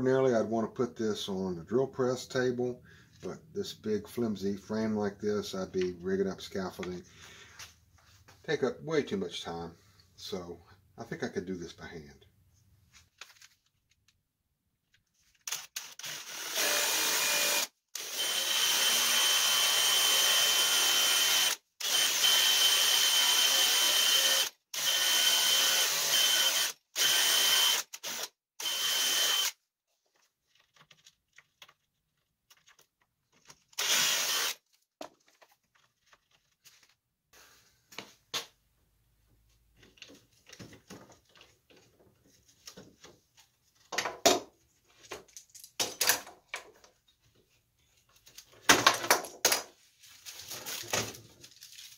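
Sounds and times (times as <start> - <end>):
cordless drill boring into wood: 15.5 - 29.6, 33.8 - 34.6
clamps clicking and knocking: 45.1 - 47.0.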